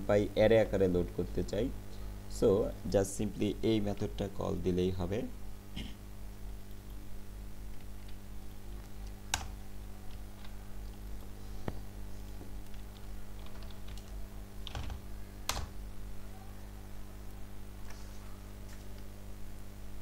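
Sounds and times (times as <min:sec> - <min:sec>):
steady low hum: 0:00.0 - 0:20.0
typing on computer keyboard: 0:12.7 - 0:15.7.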